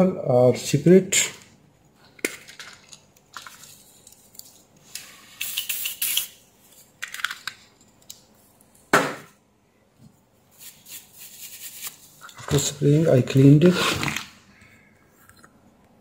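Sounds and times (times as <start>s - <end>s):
spray can hissing: 5.4s - 6.4s.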